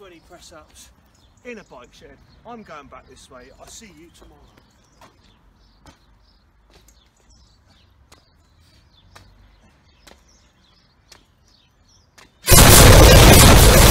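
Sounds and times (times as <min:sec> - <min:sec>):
faint birds chirping: 0:00.0 - 0:12.4
loud burst of harsh noise: 0:12.5 - 0:13.9.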